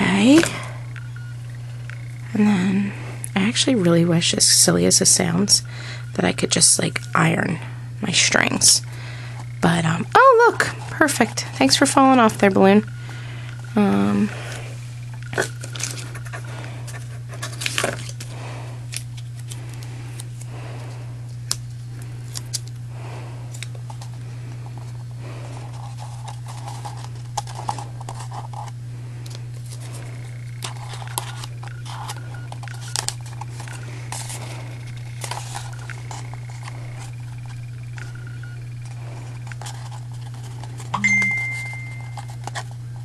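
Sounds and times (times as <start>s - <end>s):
steady low hum: 0.0s - 43.0s
paper rustling and crinkling: 15.4s - 20.5s, 24.8s - 38.1s, 38.8s - 40.9s, 41.6s - 43.0s.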